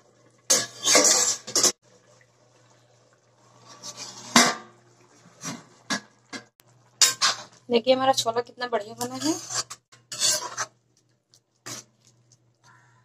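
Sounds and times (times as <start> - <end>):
metal lid scraping: 0.5 - 1.8, 3.6 - 4.7, 7.0 - 7.6, 9.0 - 10.8.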